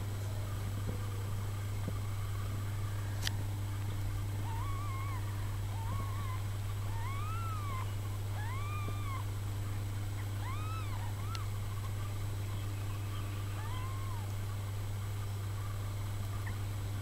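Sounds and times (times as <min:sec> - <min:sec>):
steady low hum: 0:00.0 - 0:17.0
kittens mewing: 0:04.3 - 0:09.4, 0:10.1 - 0:14.4.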